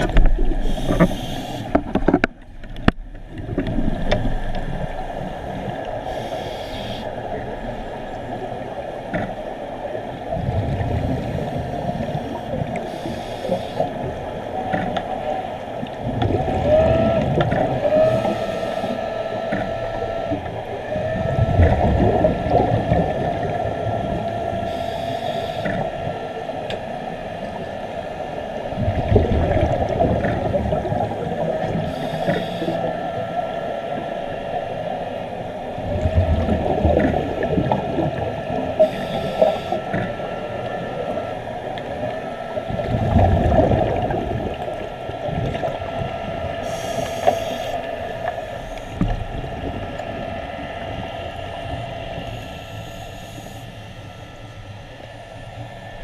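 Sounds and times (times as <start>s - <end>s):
regulator inhalation hiss: 0.6s - 1.8s, 6.1s - 7.1s, 12.9s - 13.9s, 24.7s - 25.7s, 31.8s - 32.8s, 38.8s - 39.8s, 46.6s - 47.8s, 52.2s - 53.9s
exhaled bubbles gushing: 10.3s - 12.8s, 16.0s - 18.4s, 20.8s - 24.6s, 28.7s - 32.9s, 35.8s - 47.8s.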